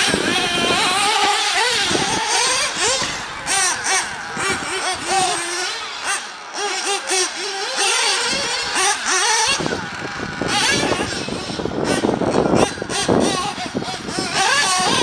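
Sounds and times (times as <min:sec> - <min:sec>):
small engine revving: 0:00.0 - 0:15.0.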